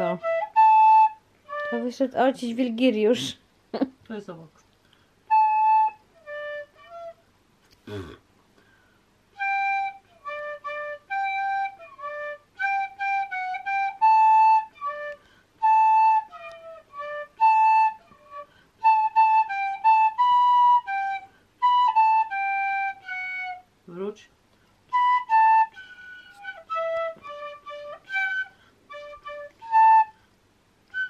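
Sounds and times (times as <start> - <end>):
recorder playing simple melody: 0.0 - 2.1, 5.3 - 7.3, 9.3 - 23.7, 24.9 - 30.2.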